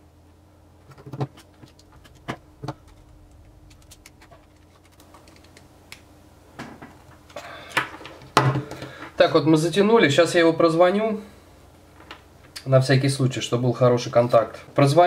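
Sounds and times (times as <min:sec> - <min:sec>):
handling noise: 0:00.8 - 0:09.2.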